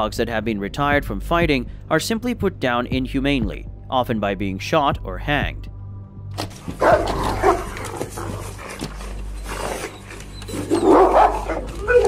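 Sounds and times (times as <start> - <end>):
dogs fighting: 6.5 - 12.0.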